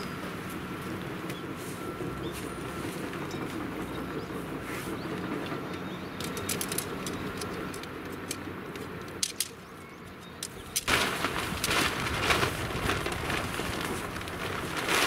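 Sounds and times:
tent poles clicking: 6.2s - 9.6s, 10.2s - 15.0s
tent fabric rustling: 10.8s - 15.0s.

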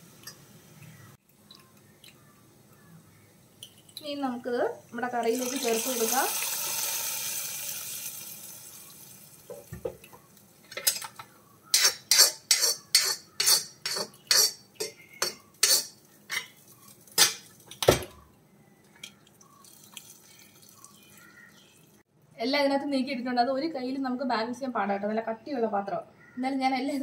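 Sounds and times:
spoon scraping and tapping a pan: 9.5s - 16.6s.

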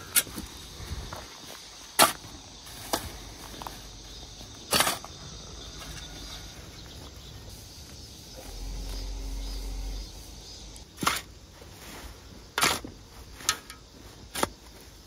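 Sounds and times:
metal blade chopping soil: 4.7s - 5.1s.

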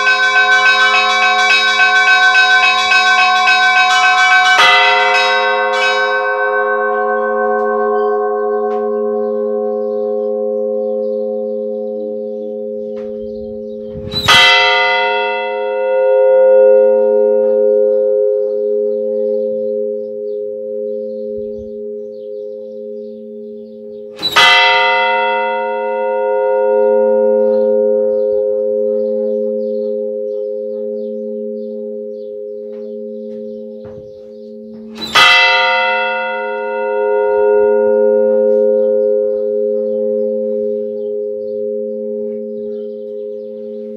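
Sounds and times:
church bell tolling: 0.0s - 43.9s
low pulsing hum: 13.0s - 14.4s.

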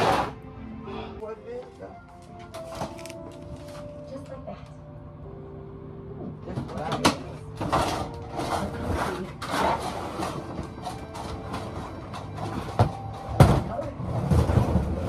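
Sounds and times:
plastic bins dragged and knocking: 6.5s - 15.0s.

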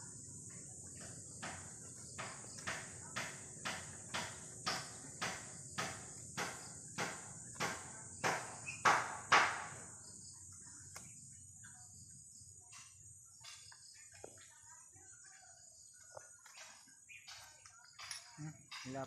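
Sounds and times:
high insect buzz: 0.0s - 14.1s.

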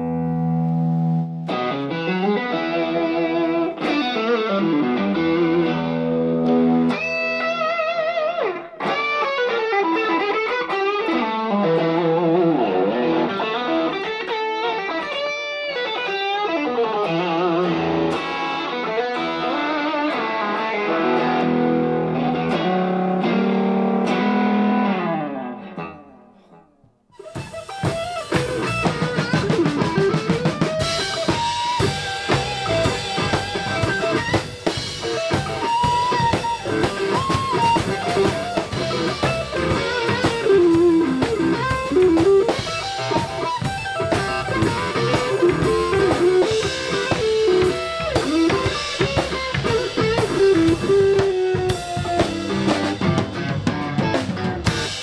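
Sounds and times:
rock band playing: 0.0s - 26.1s, 27.2s - 55.0s
electric guitar lead lines: 0.0s - 55.0s.

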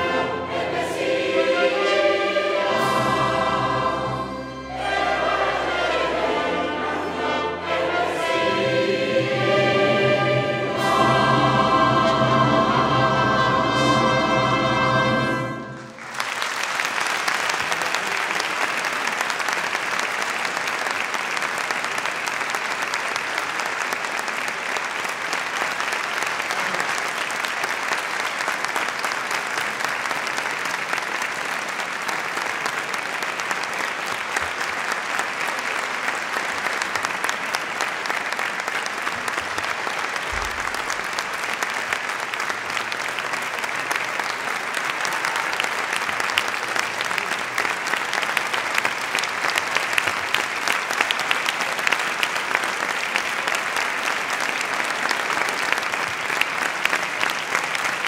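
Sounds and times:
choir with violin and trumpets: 0.0s - 16.0s
audience applause: 10.7s - 58.0s.

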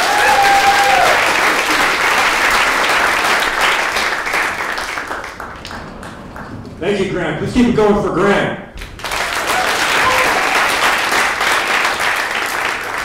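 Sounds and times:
audience applauding: 0.0s - 6.6s, 8.8s - 13.0s
call from the crowd: 9.4s - 10.8s.

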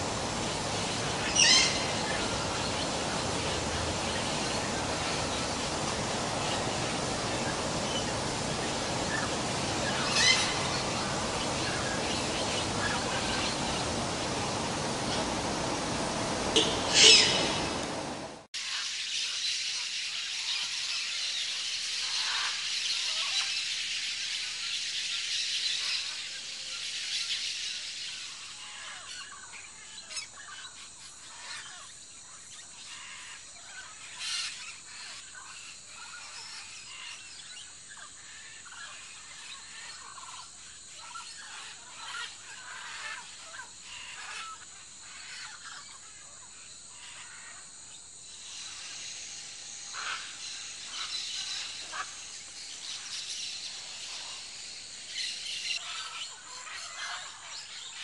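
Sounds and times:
forest ambience hiss: 0.0s - 58.0s
birds giving short calls: 4.6s - 18.2s.

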